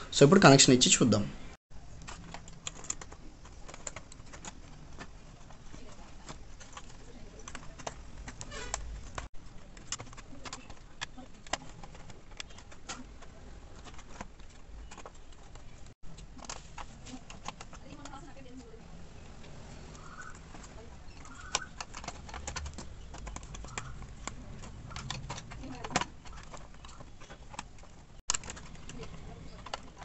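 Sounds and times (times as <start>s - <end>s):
faint bird cooing: 19.9s - 20.4s.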